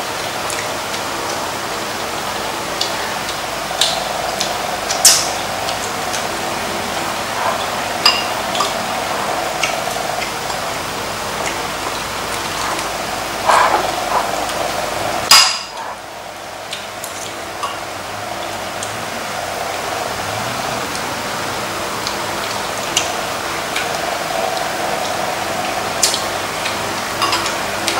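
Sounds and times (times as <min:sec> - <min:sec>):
steady background hum: 0:00.0 - 0:27.9
cutlery clinking against bowls: 0:07.4 - 0:08.8, 0:15.2 - 0:15.9, 0:27.2 - 0:27.9.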